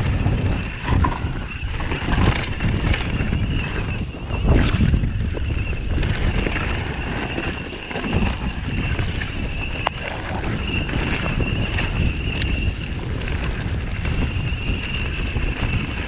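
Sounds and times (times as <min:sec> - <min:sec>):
high whine from bike: 0:00.0 - 0:16.0
sharp clicks from bike: 0:00.0 - 0:16.0
wind rumbling on microphone: 0:00.0 - 0:16.0.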